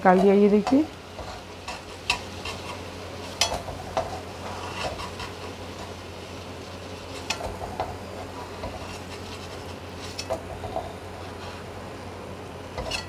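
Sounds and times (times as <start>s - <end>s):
metal spoon scraping a pan: 0.1s - 5.9s, 12.8s - 13.0s.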